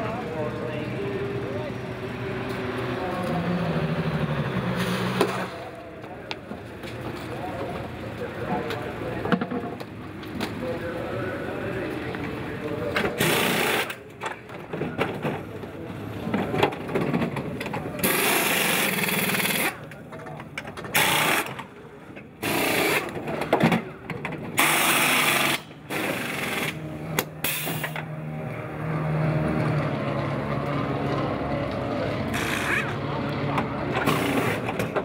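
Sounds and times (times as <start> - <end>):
pneumatic wheel guns rattling: 13.1 - 14.4, 18.0 - 19.8, 20.8 - 21.7, 22.4 - 23.5, 24.5 - 28.0, 32.3 - 33.0, 34.0 - 35.0.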